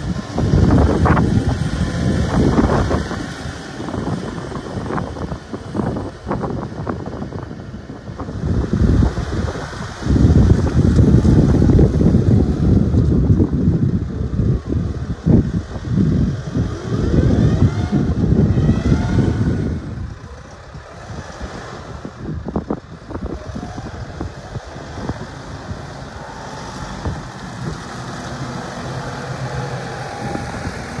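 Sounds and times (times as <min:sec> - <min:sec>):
tractor diesel engine running: 0:00.0 - 0:31.0
wind rumble on microphone: 0:00.0 - 0:31.0.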